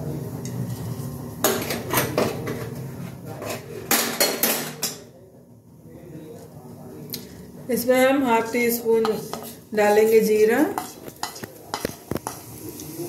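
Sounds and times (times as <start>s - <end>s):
metal utensils clattering in pan: 9.0s - 12.8s.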